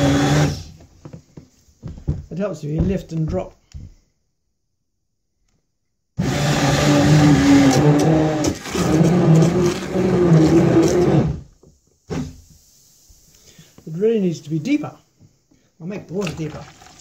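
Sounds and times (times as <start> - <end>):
stick blender whirring: 0.0 - 0.7, 6.2 - 11.5.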